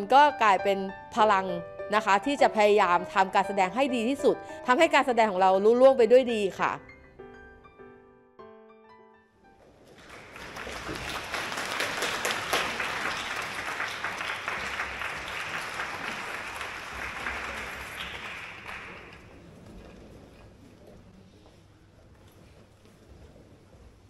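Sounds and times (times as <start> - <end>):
audience applauding: 9.9 - 19.4.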